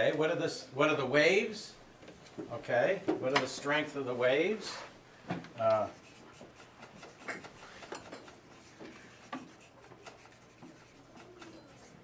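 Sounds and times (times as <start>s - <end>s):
marker squeaking on paper: 5.8s - 12.0s.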